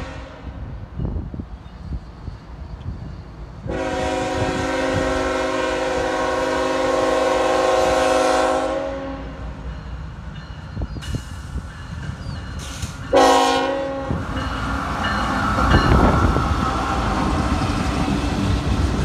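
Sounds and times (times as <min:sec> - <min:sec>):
locomotive air horn: 0:00.0 - 0:00.5, 0:03.7 - 0:09.4, 0:13.1 - 0:14.2.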